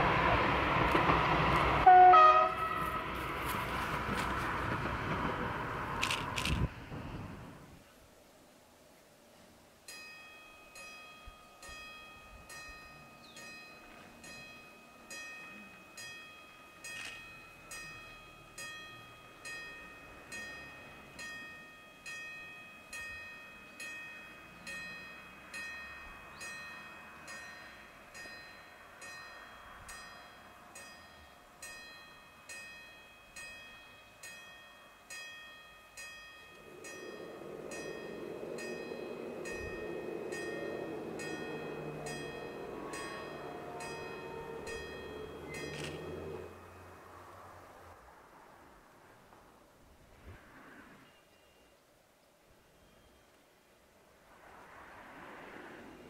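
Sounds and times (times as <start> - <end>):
level-crossing warning bell: 9.9 - 47.7
rising rumble: 36.5 - 51.0.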